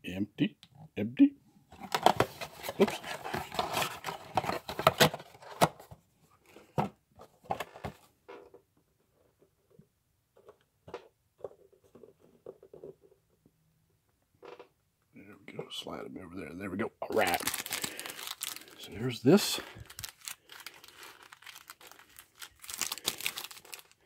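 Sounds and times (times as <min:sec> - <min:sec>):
cardboard box rustling and scraping: 0:01.8 - 0:05.6.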